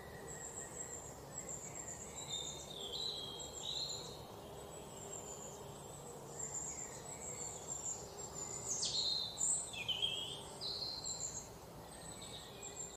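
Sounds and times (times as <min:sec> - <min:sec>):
birds chirping: 0:00.0 - 0:12.9
steady background hiss: 0:00.0 - 0:12.9.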